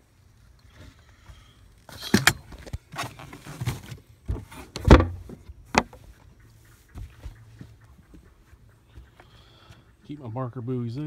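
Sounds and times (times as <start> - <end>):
lid closing thump: 4.8 - 5.9.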